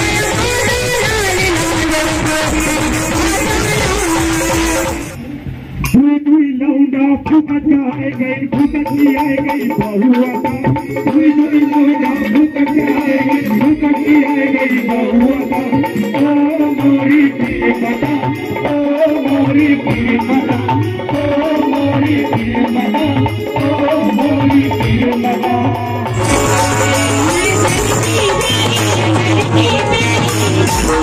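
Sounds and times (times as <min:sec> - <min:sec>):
hand drum beat: 0:00.0 - 0:05.2, 0:14.9 - 0:31.0
men singing into microphones: 0:00.0 - 0:05.2, 0:05.9 - 0:31.0
electronic keyboard: 0:26.1 - 0:31.0.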